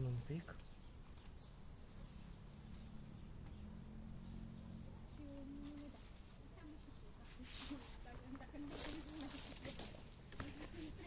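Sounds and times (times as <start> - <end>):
high insect chirps: 0.0 - 11.0
hands rustling in loose soil: 5.4 - 11.0.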